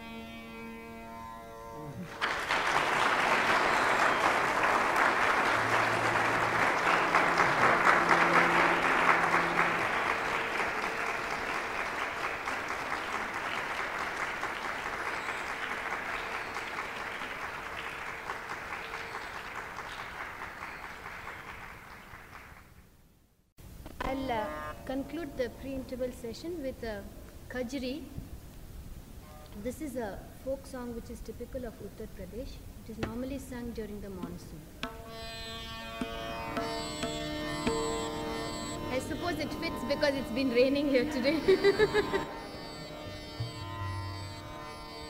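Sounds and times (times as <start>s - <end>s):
audience applauding: 2.1s - 22.7s, 41.3s - 42.8s.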